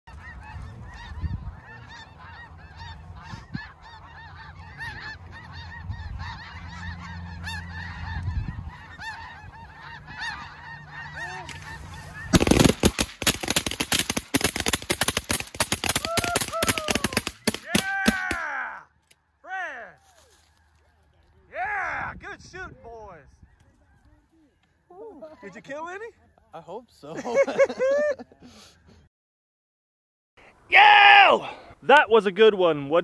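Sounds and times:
geese honking: 0:00.1 - 0:18.3
shotgun fire: 0:12.3 - 0:18.4.

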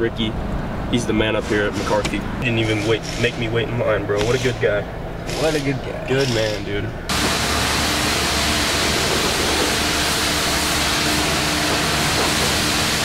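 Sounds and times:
faint equipment hum: 0:00.0 - 0:07.1
pressure washer spraying water: 0:07.1 - 0:13.0.

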